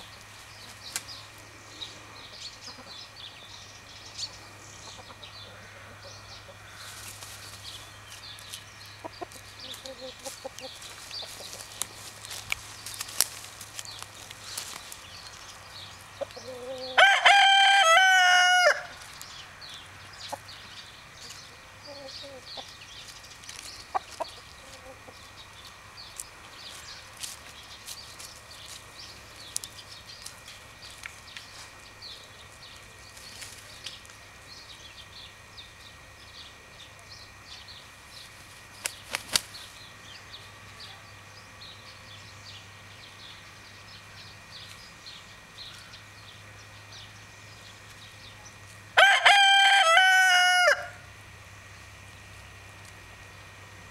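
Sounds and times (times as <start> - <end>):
rooster crowing: 16.4 - 19.0, 49.0 - 51.1.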